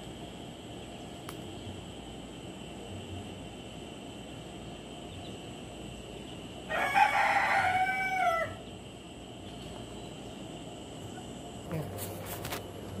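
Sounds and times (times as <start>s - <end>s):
rooster crowing: 6.7s - 8.7s.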